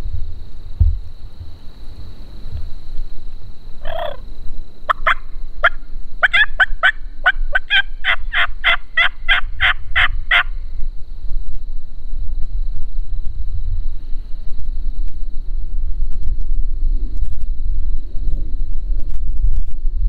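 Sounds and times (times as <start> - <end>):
wild turkey calling: 3.8 - 4.2, 4.9 - 10.5.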